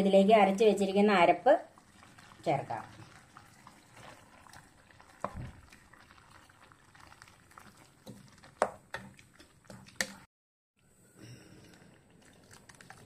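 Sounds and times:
curry bubbling: 0.1s - 10.3s, 11.3s - 13.0s
wooden spatula knocking and scraping: 8.0s - 10.3s.

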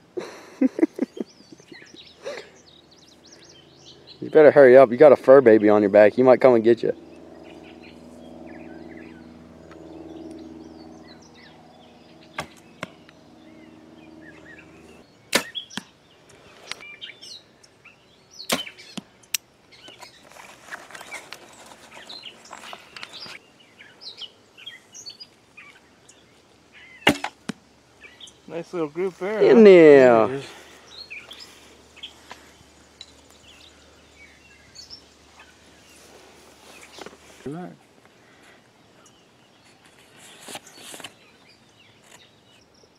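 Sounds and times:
steady low hum: 0.0s - 39.6s
arrows striking foam targets: 12.4s - 13.0s, 15.3s - 15.9s, 18.5s - 19.0s, 27.0s - 27.6s.

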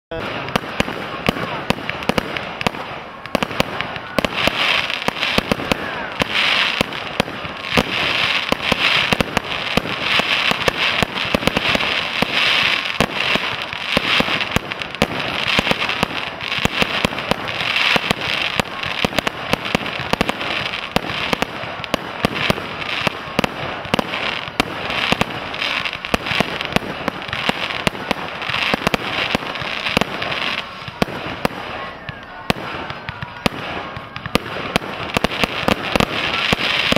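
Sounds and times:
fireworks bangs: 0.1s - 36.9s
crackling hiss: 0.2s - 32.0s.

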